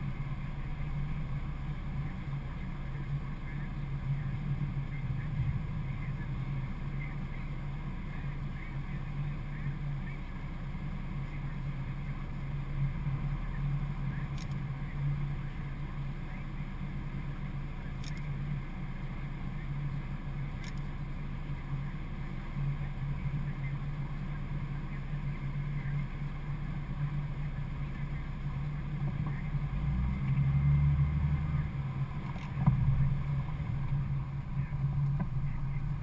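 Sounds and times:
deep rumble: 0.0s - 36.0s
steady low hum: 0.0s - 36.0s
faint clicks: 14.3s - 14.7s, 18.0s - 18.4s, 20.6s - 20.9s.

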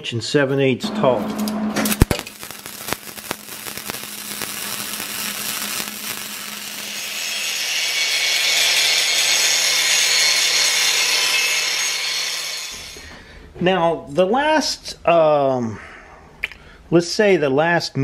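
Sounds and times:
angle grinder grinding steel: 1.1s - 13.1s
arc welding crackle: 1.3s - 13.0s.

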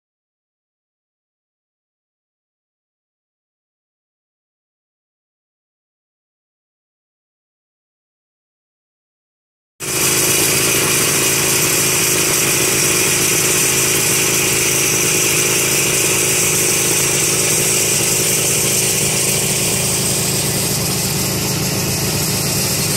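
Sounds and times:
snowmobile engines idling: 9.8s - 22.9s.

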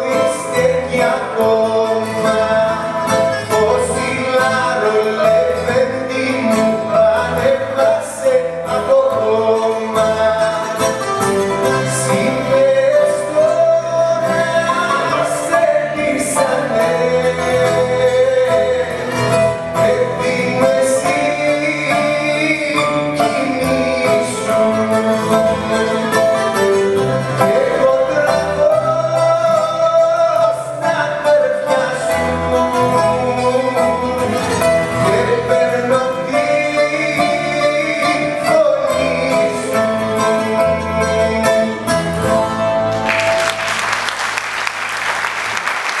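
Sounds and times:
man singing: 0.0s - 43.4s
plucked lute: 0.0s - 43.6s
keyboard: 0.0s - 44.1s
upright bass: 0.0s - 46.0s
audience applause: 43.0s - 46.0s.

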